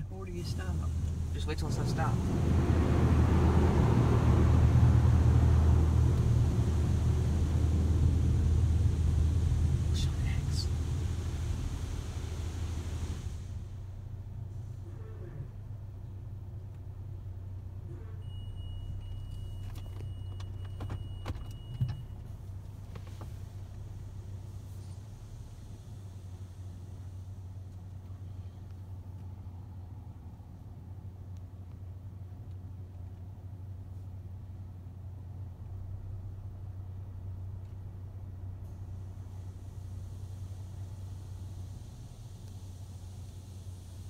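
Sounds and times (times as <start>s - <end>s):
faint high whine: 0.0s - 16.1s
car engine running: 0.0s - 44.0s
steady low hum: 0.0s - 44.0s.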